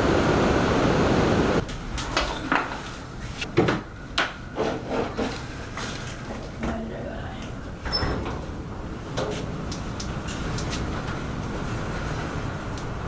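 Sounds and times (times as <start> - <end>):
sea surf rushing: 0.0 - 2.0
wind: 0.0 - 13.0.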